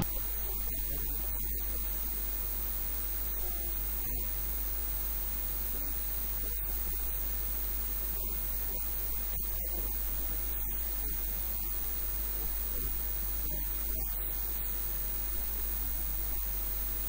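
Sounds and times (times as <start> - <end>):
electrical mains hum: 0.0 - 17.0
faint hiss: 0.0 - 17.0.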